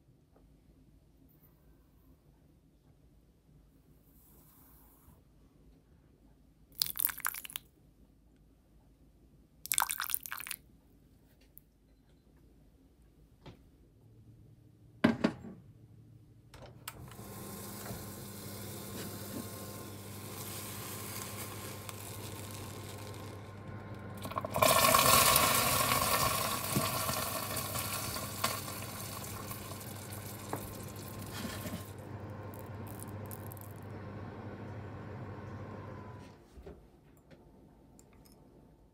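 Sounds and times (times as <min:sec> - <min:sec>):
microwave oven humming: 0:16.6 - 0:36.4
caramel hissing and sizzling: 0:17.2 - 0:33.8.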